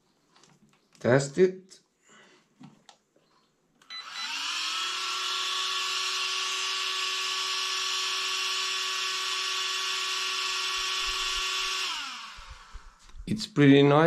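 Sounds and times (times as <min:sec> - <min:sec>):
small cooling fan whining: 0:03.8 - 0:13.4.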